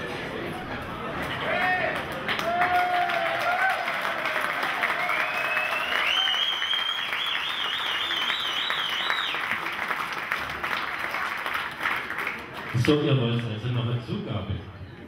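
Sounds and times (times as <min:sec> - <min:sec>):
audience applauding: 0:01.6 - 0:13.6.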